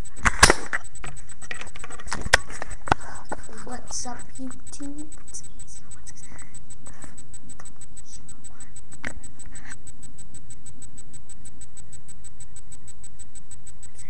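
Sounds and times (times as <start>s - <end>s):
fast even ticking: 0.0s - 14.0s
steady low hum: 0.0s - 14.0s.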